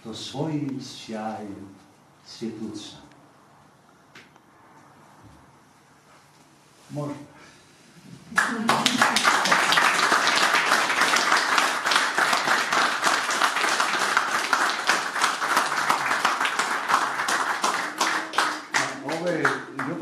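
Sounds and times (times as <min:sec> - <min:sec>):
audience applauding: 0:08.3 - 0:20.0.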